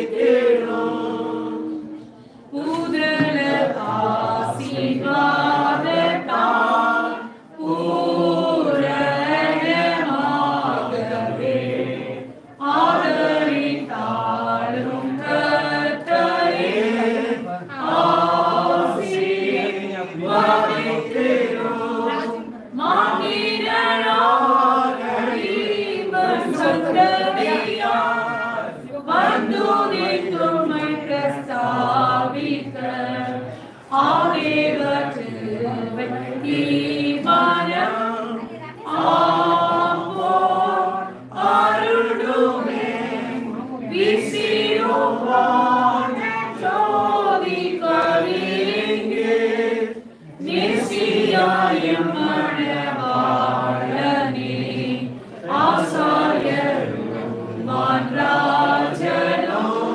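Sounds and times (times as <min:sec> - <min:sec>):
group singing unaccompanied: 0:00.0 - 0:59.9.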